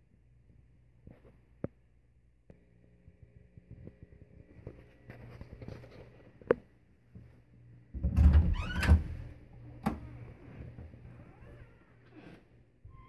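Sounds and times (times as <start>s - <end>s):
creaking hinge: 8.0s - 9.2s.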